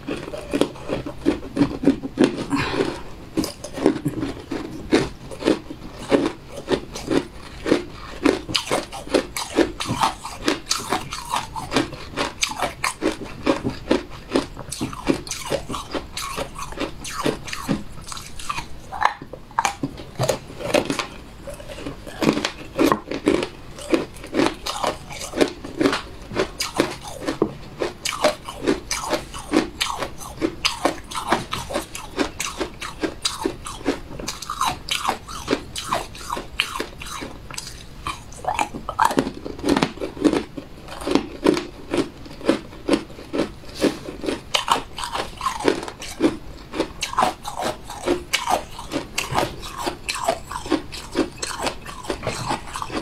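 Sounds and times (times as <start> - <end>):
person chewing crunchy food: 0.0 - 53.0.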